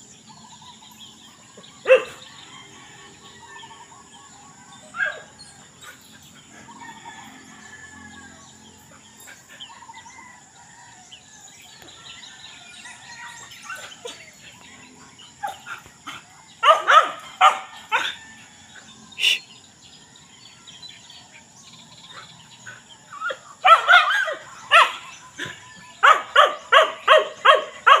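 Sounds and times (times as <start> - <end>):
dog barking: 1.8 - 2.3, 16.6 - 18.2, 23.6 - 25.1, 26.0 - 28.0.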